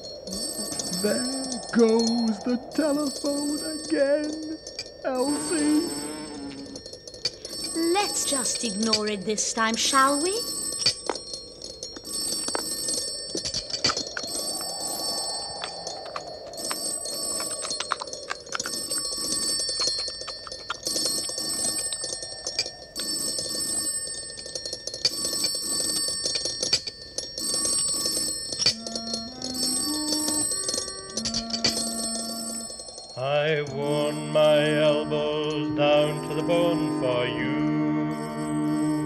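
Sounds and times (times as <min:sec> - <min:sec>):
telephone bell ringing: 0:00.0 - 0:11.3, 0:27.4 - 0:39.0.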